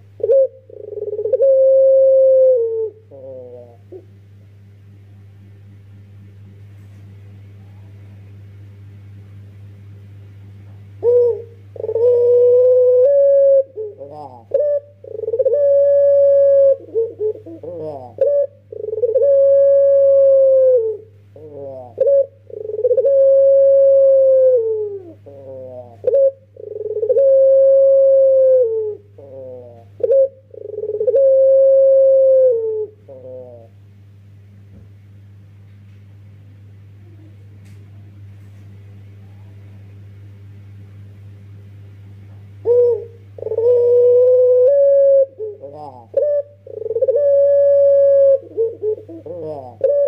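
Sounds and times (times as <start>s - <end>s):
dove cooing: 0.0s - 4.2s, 11.0s - 33.8s, 42.6s - 50.0s
low hum: 0.0s - 50.0s.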